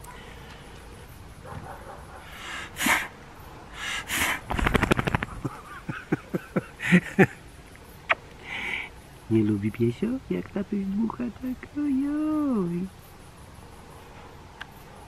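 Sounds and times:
man blowing breathy puffs: 2.2 - 5.6.

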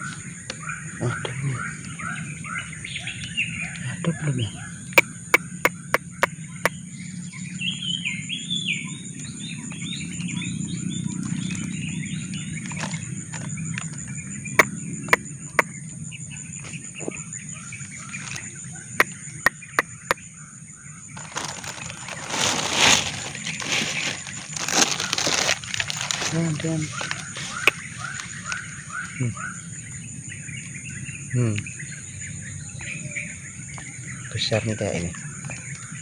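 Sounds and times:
birds chirping: 0.0 - 36.0
rustling through dry grass: 21.2 - 28.7.

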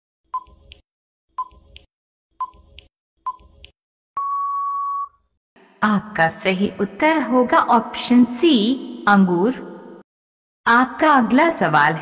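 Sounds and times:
long steady beep: 4.2 - 5.2
short beeps: 4.2 - 5.2.

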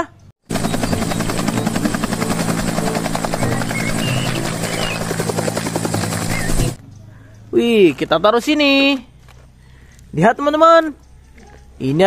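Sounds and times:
helicopter rotor blades beating: 0.4 - 6.8.

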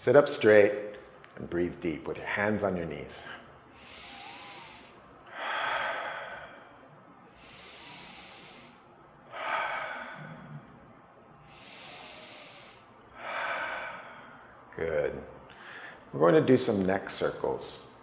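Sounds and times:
man breathing deeply: 3.3 - 14.7, 15.5 - 16.1.

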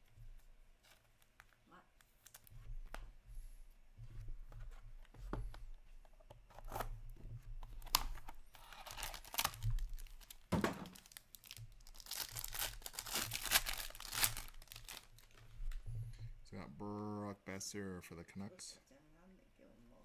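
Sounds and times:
wrapper tearing and crinkling: 7.8 - 15.4.

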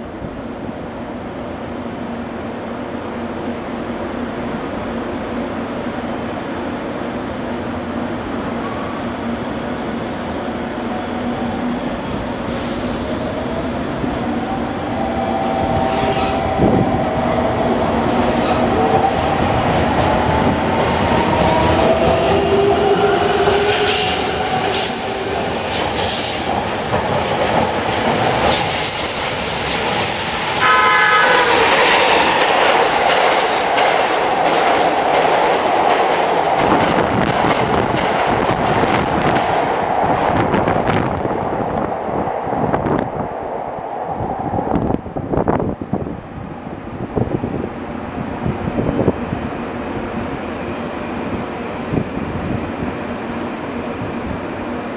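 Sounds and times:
train horn blast: 30.6 - 32.0.

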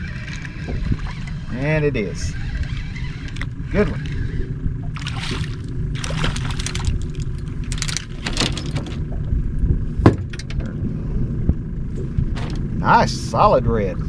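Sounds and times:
steady low rumble: 0.0 - 14.0
fish splashing at surface: 5.0 - 7.4.

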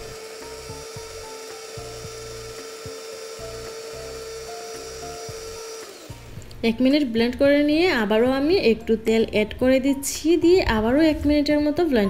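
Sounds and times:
electric blender motor whine: 0.0 - 6.8
soft background music: 0.0 - 12.0.

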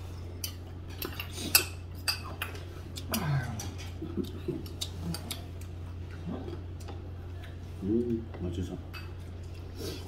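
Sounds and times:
steady low hum: 0.0 - 10.0
utensils clinking against dishes: 0.4 - 5.4, 8.9 - 9.6.

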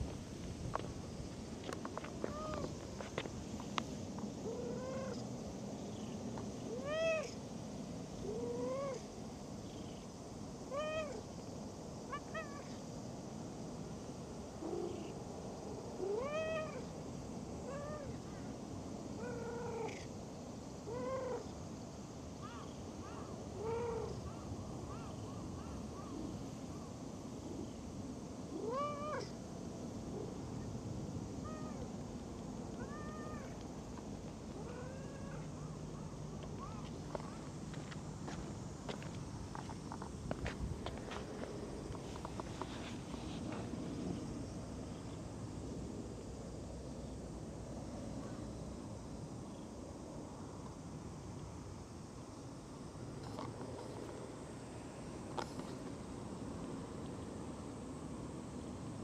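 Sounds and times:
cat meowing: 32.8 - 33.6.

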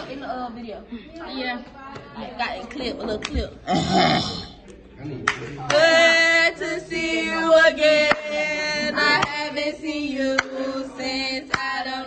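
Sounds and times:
young voices chanting in unison: 5.6 - 12.0.

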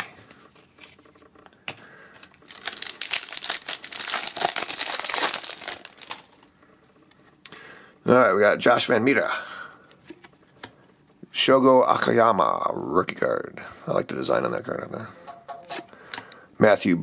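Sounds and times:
wrapper crinkling: 2.2 - 6.5.

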